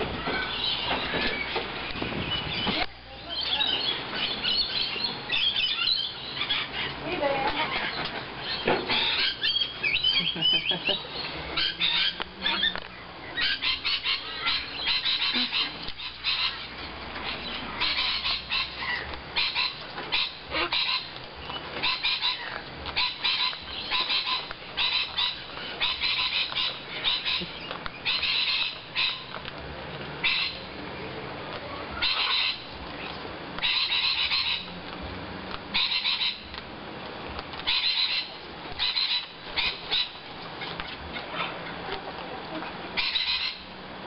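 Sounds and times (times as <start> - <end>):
cockatoos squawking: 0.0 - 29.4, 30.2 - 30.8, 31.7 - 34.8, 35.7 - 36.6, 37.6 - 44.0.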